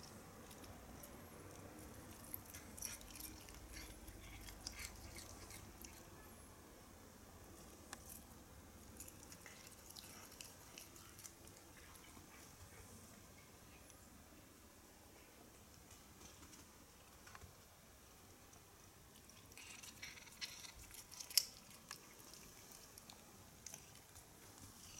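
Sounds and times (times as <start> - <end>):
cat chewing grass: 0.0 - 6.2, 7.6 - 13.1, 18.4 - 24.9.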